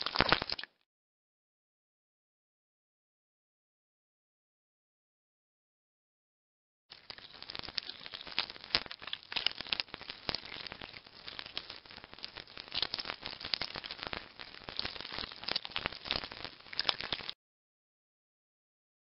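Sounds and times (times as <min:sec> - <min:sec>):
dense irregular crackling clicks: 0:00.0 - 0:00.7, 0:06.9 - 0:17.4.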